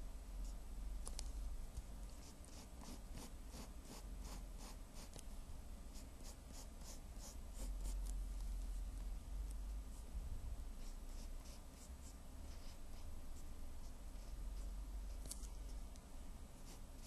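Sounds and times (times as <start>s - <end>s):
steady low hum: 0.0s - 17.0s
pencil scratching on paper: 2.2s - 5.2s, 5.9s - 8.1s, 10.8s - 15.3s, 16.6s - 17.0s.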